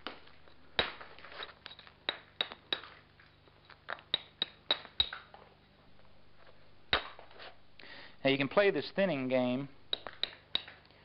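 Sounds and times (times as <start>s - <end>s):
stone striking obsidian: 6.9s - 7.4s.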